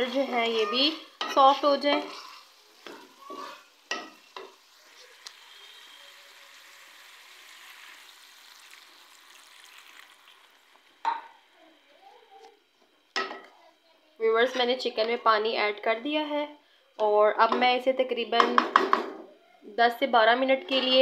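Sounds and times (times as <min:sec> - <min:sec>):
sizzling in hot oil: 0:00.0 - 0:11.5.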